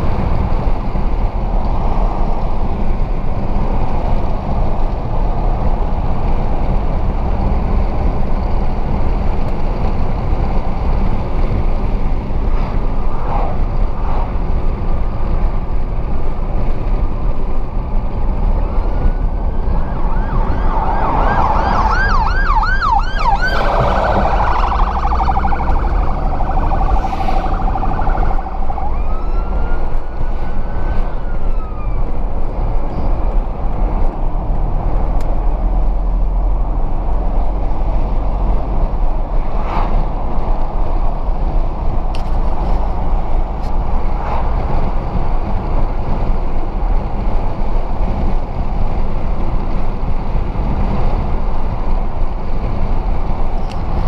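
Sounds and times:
car cabin road and engine noise: 0.0s - 54.0s
fire engine siren: 18.9s - 32.3s.

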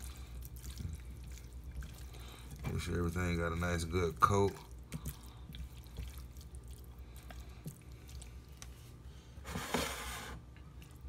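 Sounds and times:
hands squishing wet meat: 0.0s - 9.4s.

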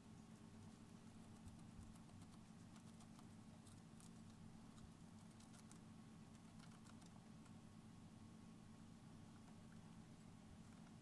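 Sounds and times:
low steady background hum: 0.0s - 11.0s
hamster chewing crunching clicks: 0.6s - 7.7s.

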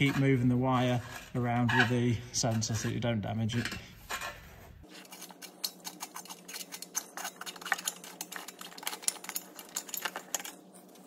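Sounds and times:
metal threads clicking and scraping: 5.0s - 11.0s.

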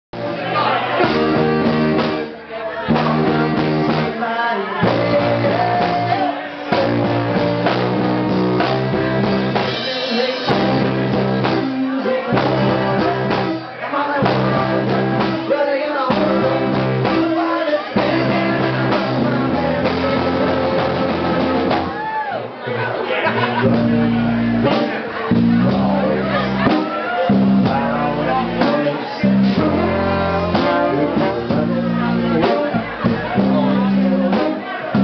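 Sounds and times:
trombone playing held notes: 0.2s - 2.3s, 29.4s - 34.7s
drums: 0.2s - 35.0s
electric guitar: 0.2s - 35.0s.

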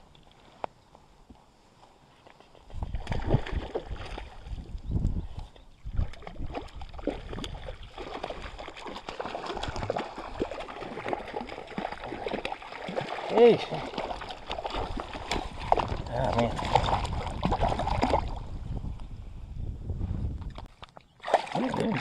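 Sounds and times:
water splashing and gurgling: 2.7s - 4.8s, 5.8s - 18.7s, 21.1s - 22.0s.

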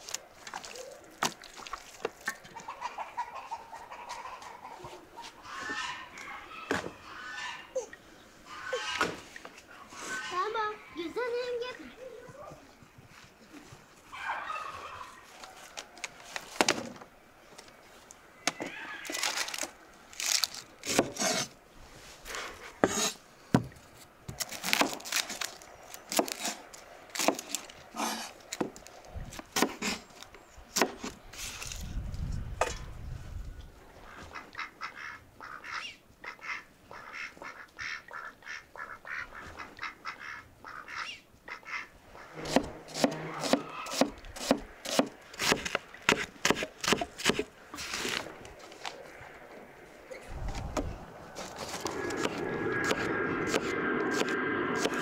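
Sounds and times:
geese honking: 2.6s - 7.8s, 8.4s - 9.1s, 34.1s - 43.9s.

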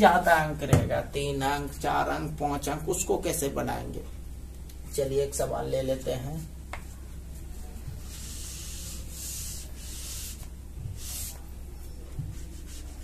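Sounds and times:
eraser wiping a whiteboard: 7.4s - 13.0s.

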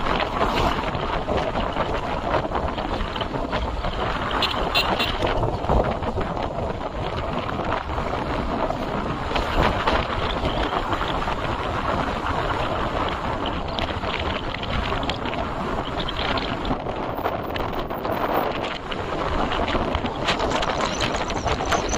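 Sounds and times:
motorbike running: 0.0s - 21.9s
wind buffeting microphone: 0.0s - 21.9s.

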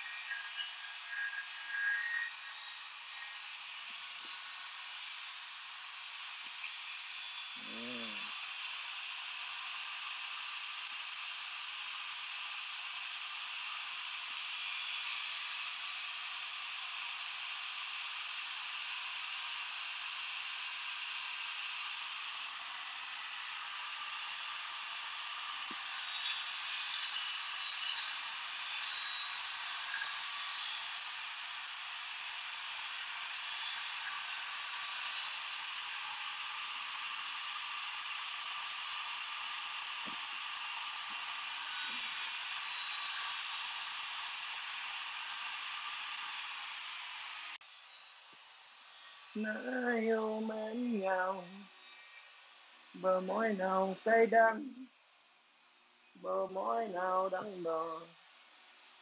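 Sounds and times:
table saw cutting vinyl plank: 19.8s - 51.4s.

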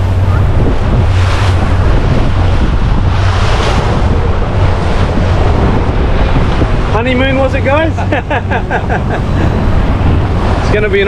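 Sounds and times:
outboard motor drone: 0.0s - 11.0s
water rushing in wake: 0.0s - 11.0s
wind buffeting microphone: 0.0s - 11.0s.

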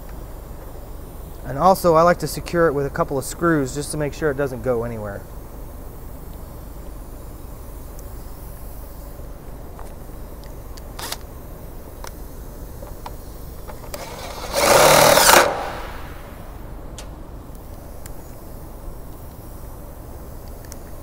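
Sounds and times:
power drill driving screw: 13.8s - 16.1s.

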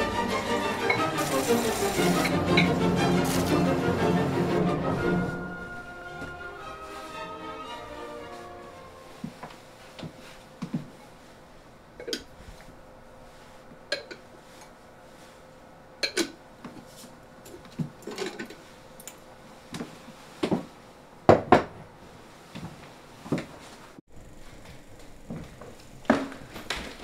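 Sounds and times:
bowls clinking and knocking: 13.9s - 14.3s, 16.0s - 16.4s.

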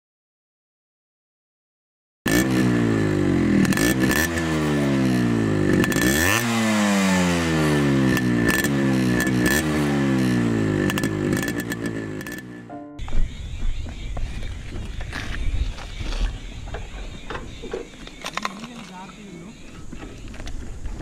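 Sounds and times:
two-stroke engine revving: 2.3s - 12.7s.

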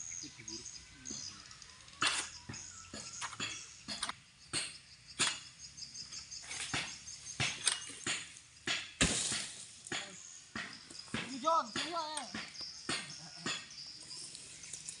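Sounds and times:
sickle cutting strikes: 2.0s - 5.5s, 6.4s - 13.8s
fronds rustling: 9.0s - 12.3s, 13.8s - 15.0s.

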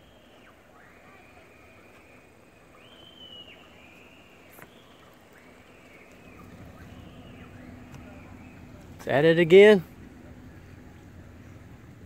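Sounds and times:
faint bird calls: 0.0s - 9.0s.

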